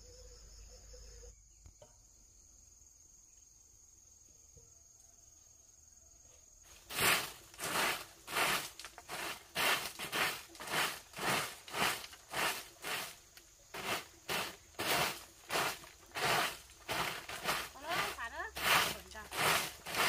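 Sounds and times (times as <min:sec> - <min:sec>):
cricket trilling: 0:00.0 - 0:20.0
scratchy swishing strokes: 0:13.8 - 0:20.0.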